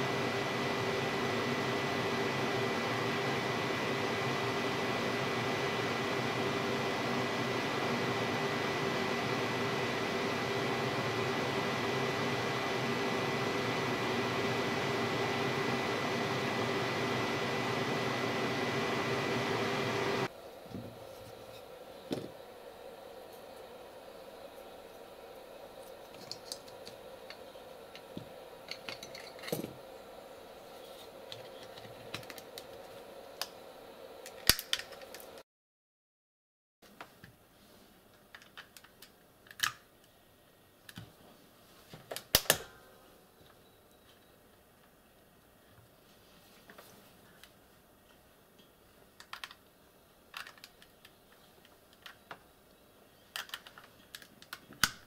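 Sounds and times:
steady low hum: 0:00.0 - 0:35.4.

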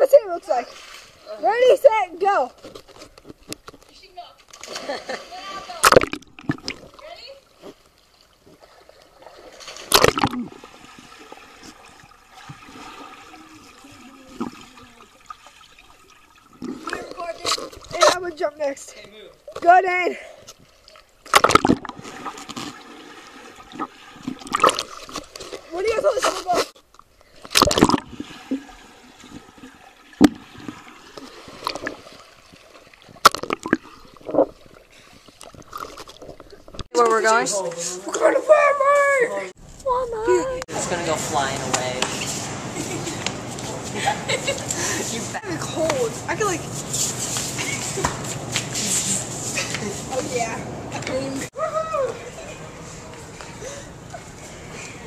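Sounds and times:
short bursts of splashing: 0:00.0 - 0:02.0, 0:04.1 - 0:18.4, 0:20.6 - 0:26.8, 0:27.4 - 0:36.9
splash into swimming pool: 0:04.5 - 0:07.1, 0:08.6 - 0:17.6
underwater bubbling: 0:07.9 - 0:18.1, 0:20.6 - 0:25.7, 0:27.2 - 0:36.9
loud splash into pool: 0:09.5 - 0:11.3.

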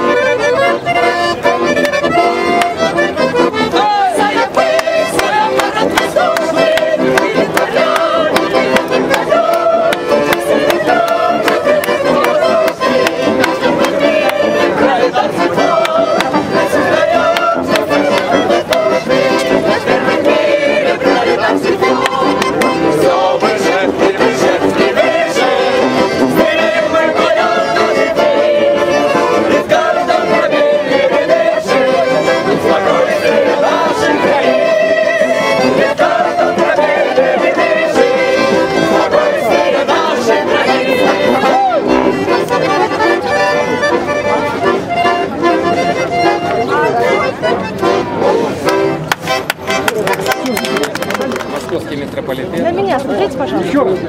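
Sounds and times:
group of voices singing: 0:00.0 - 0:44.4
accordions playing: 0:00.0 - 0:54.0
hand claps: 0:01.8 - 0:02.8, 0:04.5 - 0:14.4, 0:15.7 - 0:16.4, 0:17.2 - 0:19.5, 0:21.9 - 0:22.8, 0:48.6 - 0:51.8.

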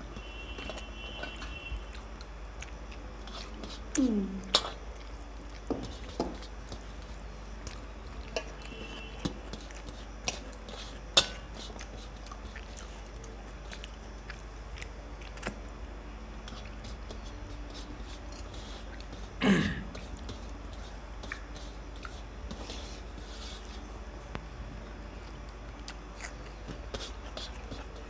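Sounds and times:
people chewing: 0:00.0 - 0:28.0.

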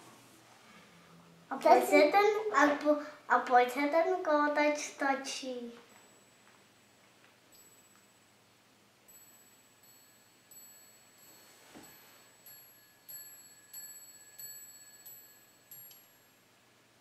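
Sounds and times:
small metal bells tinkling: 0:05.8 - 0:16.6.

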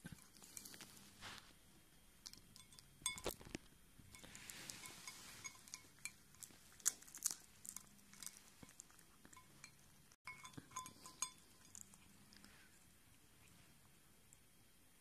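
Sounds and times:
clinks against glass bowl: 0:02.5 - 0:03.5, 0:04.1 - 0:06.2, 0:08.2 - 0:11.9
cat chewing: 0:04.1 - 0:14.5.

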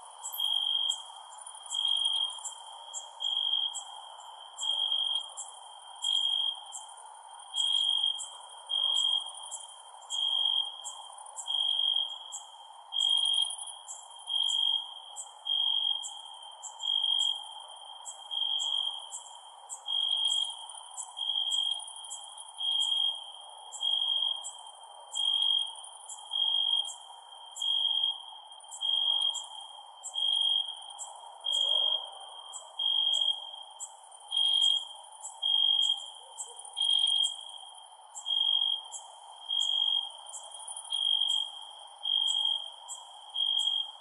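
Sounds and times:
crickets chirping: 0:00.0 - 0:44.0.

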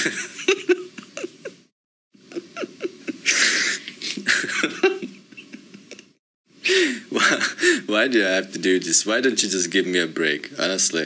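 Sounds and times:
man laughing hard: 0:00.0 - 0:06.2, 0:06.8 - 0:07.8.

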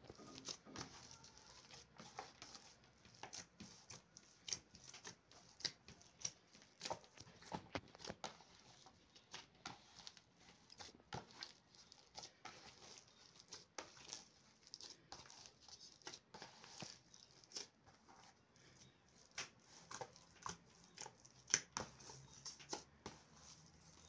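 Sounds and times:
hands kneading dough: 0:00.0 - 0:24.0.

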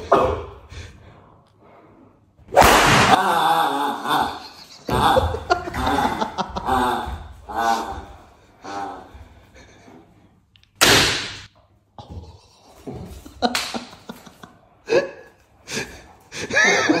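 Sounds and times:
loud smack: 0:02.5 - 0:03.2, 0:10.8 - 0:11.5
vocal cries and grunts: 0:03.0 - 0:09.4.

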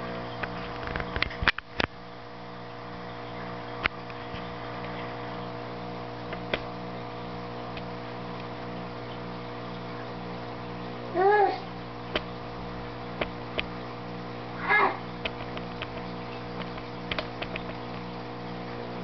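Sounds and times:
aquarium air pump humming: 0:00.0 - 0:19.0
sharp clicks: 0:15.2 - 0:17.8.

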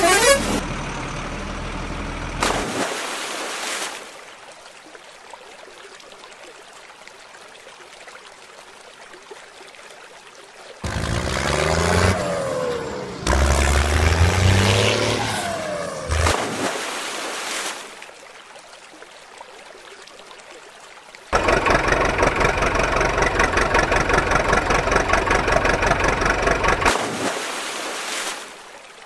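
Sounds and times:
engine revving: 0:00.0 - 0:00.8, 0:10.8 - 0:16.6, 0:21.4 - 0:27.0
toy splashing into river: 0:02.4 - 0:04.2, 0:15.4 - 0:18.0, 0:21.3 - 0:28.6
water swirling and trickling: 0:02.4 - 0:29.0.

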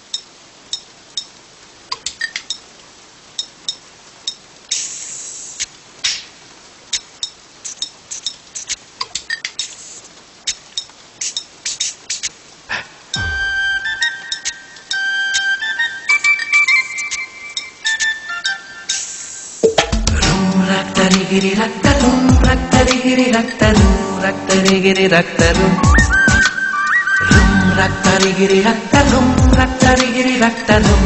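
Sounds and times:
rain falling: 0:00.0 - 0:31.0
music: 0:13.1 - 0:31.0.

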